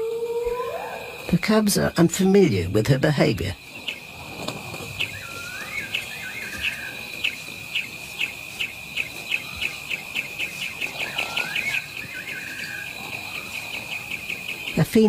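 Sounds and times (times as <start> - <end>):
high insect trill: 0.0 - 15.0
whistled bird phrase: 5.0 - 7.0.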